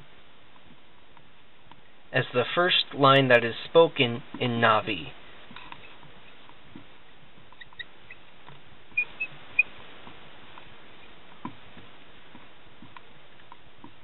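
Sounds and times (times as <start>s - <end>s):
steady hiss: 0.0s - 14.0s
marker squeaks: 7.6s - 8.2s, 9.0s - 9.7s.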